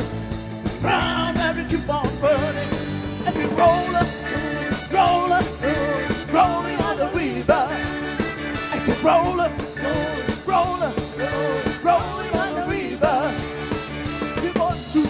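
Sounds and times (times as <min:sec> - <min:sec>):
big band playing rock: 0:00.0 - 0:15.0
woman singing: 0:12.0 - 0:13.2.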